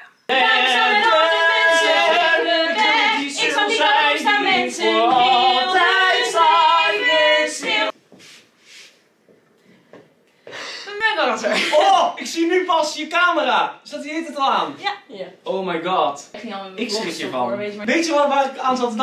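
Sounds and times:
group singing in harmony: 0:00.3 - 0:08.0.

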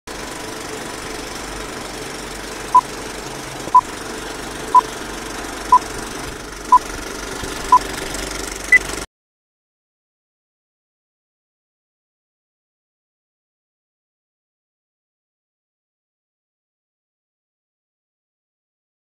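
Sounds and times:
film projector whirring clatter: 0:00.1 - 0:09.1.

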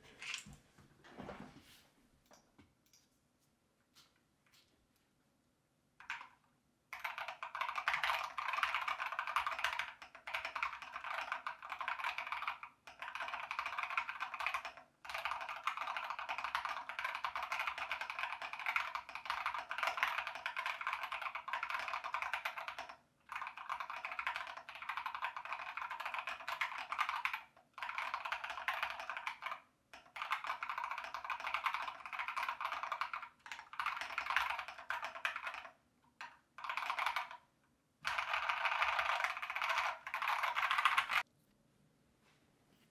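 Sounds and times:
mechanical keyboard typing: 0:06.0 - 0:06.3, 0:07.0 - 0:37.4, 0:38.0 - 0:41.2.

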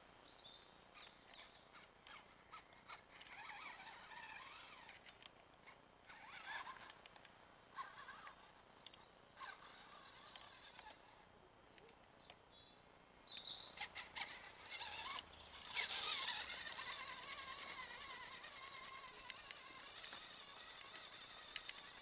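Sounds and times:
toy truck electric motor whining: 0:01.4 - 0:07.1, 0:07.8 - 0:08.6, 0:09.4 - 0:11.2, 0:13.8 - 0:22.0.

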